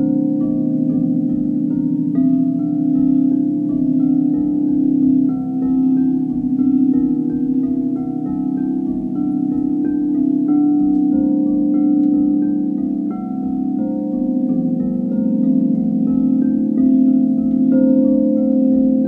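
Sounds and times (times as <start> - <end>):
crystal singing bowls ringing: 0.0 - 19.0.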